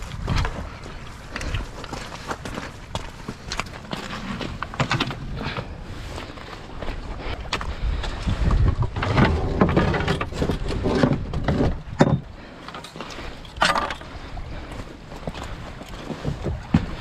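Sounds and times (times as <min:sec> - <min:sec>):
footsteps crunching on pebbles: 0:00.0 - 0:08.8.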